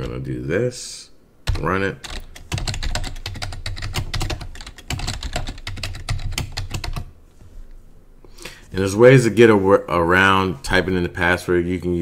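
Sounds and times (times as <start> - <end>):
fast typing on keyboard: 1.5 - 7.1.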